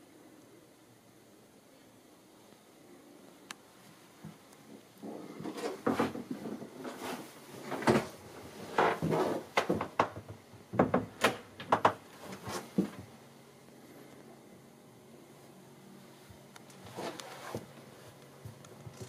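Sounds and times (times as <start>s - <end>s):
rustling: 16.6s - 19.0s.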